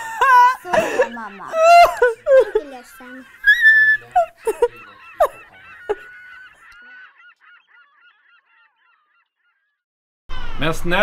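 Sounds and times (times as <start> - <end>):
woman crying: 0.0 - 6.1.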